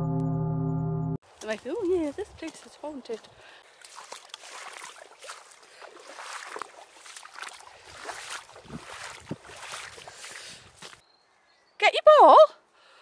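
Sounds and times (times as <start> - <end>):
rain splashes: 2.1 - 11.0
heavy rain on a wet path: 2.5 - 11.0.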